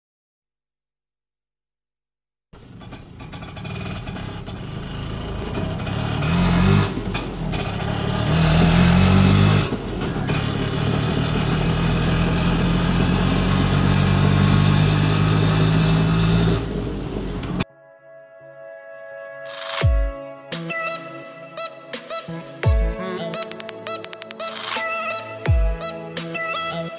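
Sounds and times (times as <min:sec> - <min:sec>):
vehicle engine revving: 0:02.6 - 0:17.6.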